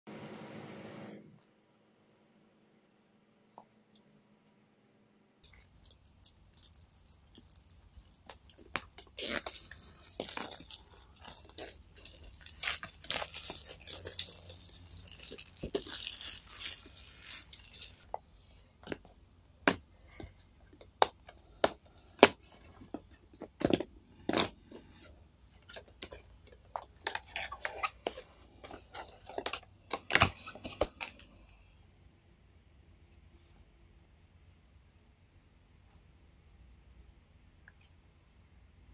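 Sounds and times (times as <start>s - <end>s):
packaging tearing and crinkling: 5.6s - 18.1s.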